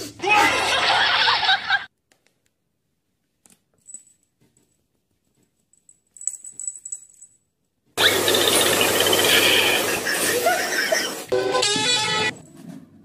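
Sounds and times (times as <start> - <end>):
cat collar bell jingling: 5.6 - 7.5.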